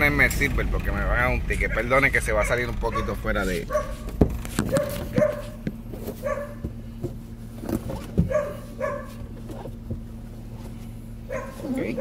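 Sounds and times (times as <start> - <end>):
dog barking: 2.4 - 5.6, 6.2 - 6.7, 8.2 - 9.2, 11.3 - 12.0.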